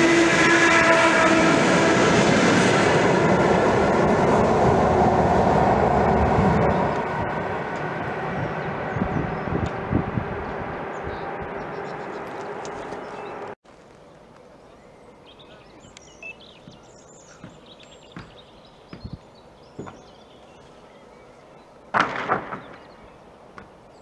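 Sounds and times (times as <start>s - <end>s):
small birds chirping: 10.4s - 21.9s.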